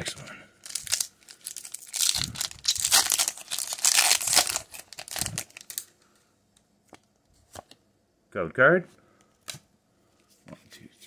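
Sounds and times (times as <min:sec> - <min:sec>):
foil wrapper crinkling and tearing: 0:00.6 - 0:05.9.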